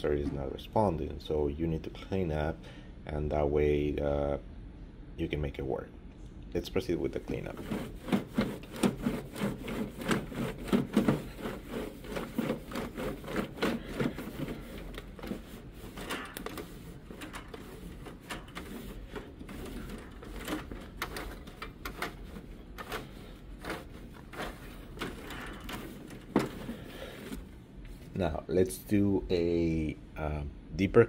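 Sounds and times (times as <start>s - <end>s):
cloth rubbing plastic: 7.2s - 28.3s.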